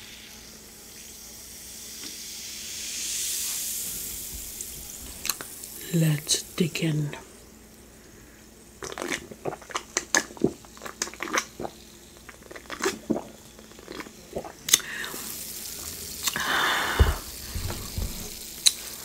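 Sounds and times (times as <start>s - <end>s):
sipping and swallowing: 8.8s - 15.2s, 16.2s - 18.8s
breathy noise: 16.3s - 18.4s
low thuds: 16.8s - 18.5s.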